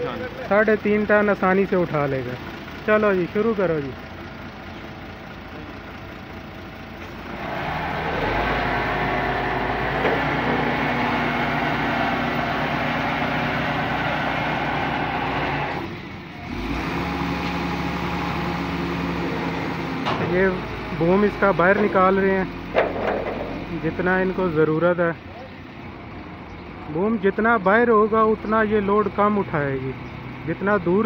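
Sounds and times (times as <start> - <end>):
truck engine driving hydraulics: 4.7 - 24.9.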